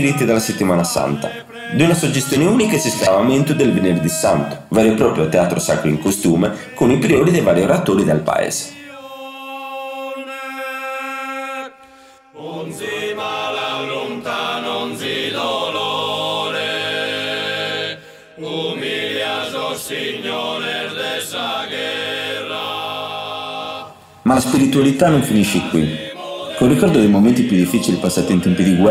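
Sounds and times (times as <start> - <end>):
voices singing a slow chant: 0.0 - 28.9.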